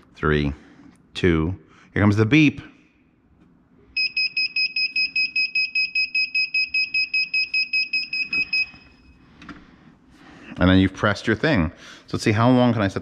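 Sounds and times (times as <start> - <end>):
rapid high beeps: 4.0 - 9.0.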